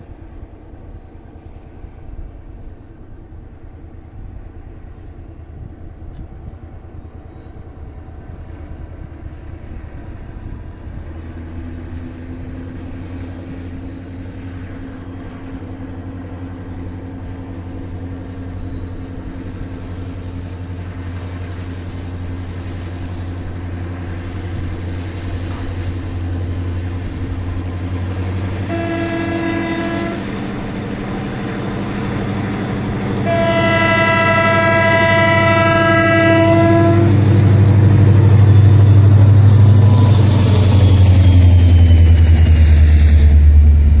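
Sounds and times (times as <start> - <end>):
diesel locomotive engine drone: 0.0 - 44.0
train horn blasts: 28.6 - 30.4, 33.1 - 38.5.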